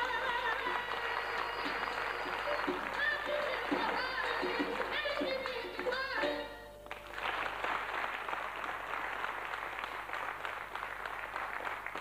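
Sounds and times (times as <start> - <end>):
audience applauding: 0.0 - 6.1, 6.8 - 12.0
person singing: 0.0 - 6.7.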